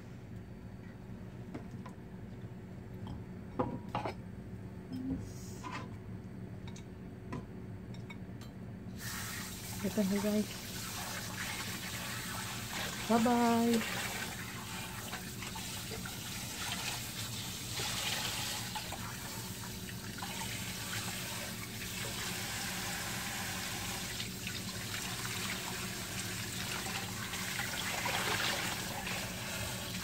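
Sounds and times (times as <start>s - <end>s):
pots scrubbed and rinsed: 9.0s - 30.0s
tap water running into sink: 9.3s - 30.0s.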